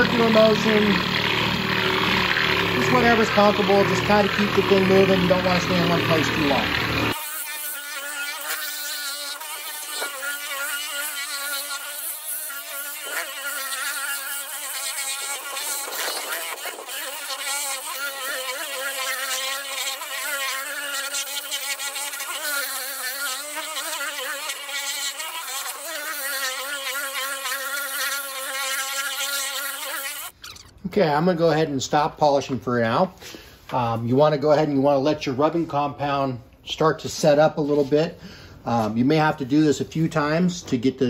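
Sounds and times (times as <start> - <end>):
orbital waxer motor buzzing: 0.0 - 30.8.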